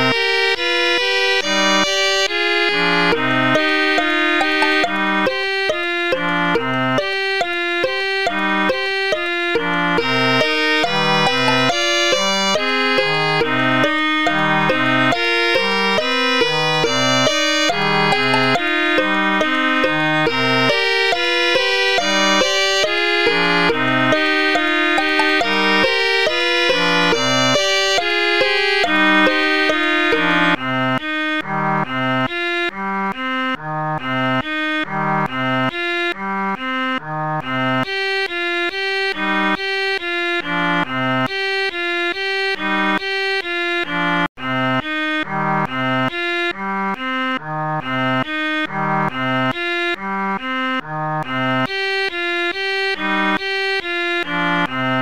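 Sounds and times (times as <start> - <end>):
instrumental background music: 0.0 - 55.0.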